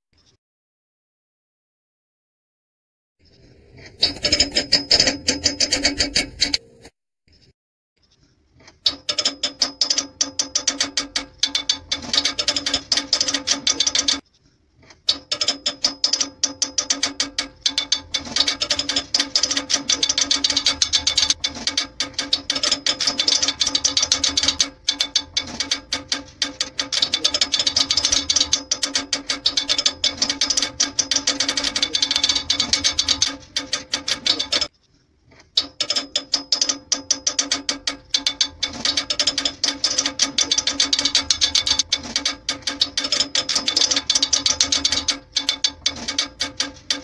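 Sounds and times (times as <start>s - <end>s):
music with fast clicking beat: 15.7s - 34.7s, 36.5s - 47.0s.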